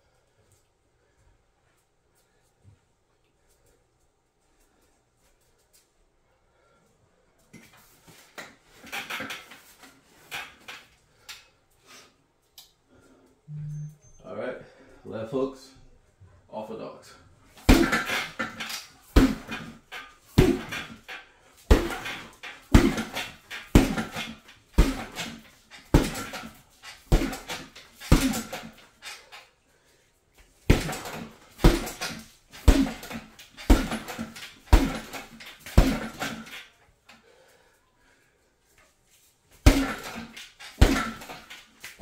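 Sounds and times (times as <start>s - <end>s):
punches thudding on heavy bag: 17.6s - 28.8s, 30.6s - 36.6s, 39.6s - 42.0s.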